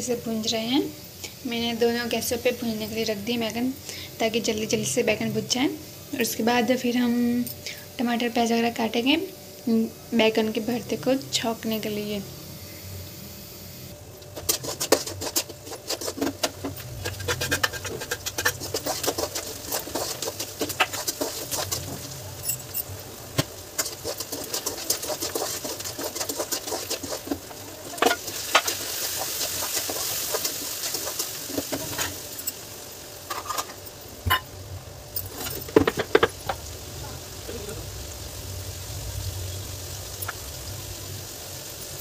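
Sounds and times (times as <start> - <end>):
food sizzling: 0.0 - 42.0
metal spoon scraping a metal pan: 14.4 - 22.8.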